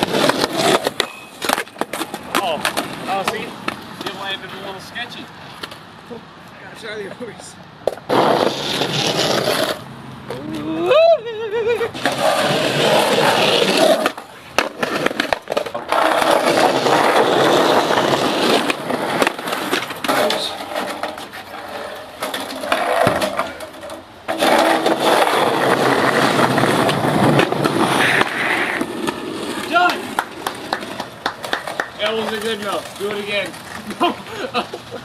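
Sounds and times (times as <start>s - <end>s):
skateboard popping and landing: 0.0s - 4.3s, 7.8s - 10.7s, 11.8s - 34.1s
skateboard wheels rolling on concrete: 0.0s - 35.0s.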